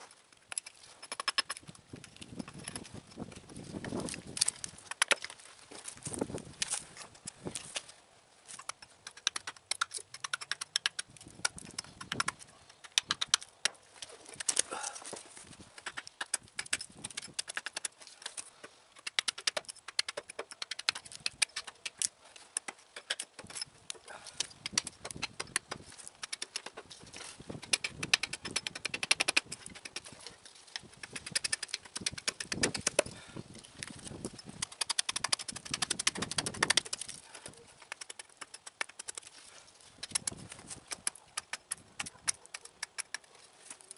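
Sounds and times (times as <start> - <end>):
hatchet chopping wooden stick: 0.5 - 1.6, 3.8 - 5.4, 8.6 - 14.7, 15.7 - 18.4, 19.0 - 30.1, 30.7 - 33.1, 33.8 - 37.2, 37.8 - 39.3, 40.0 - 43.3.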